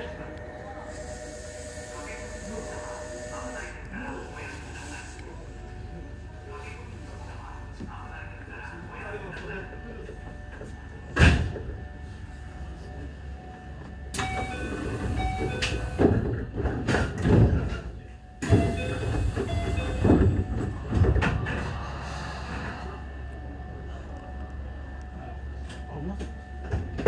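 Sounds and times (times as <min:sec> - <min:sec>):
electric train hum: 0:00.0 - 0:27.0.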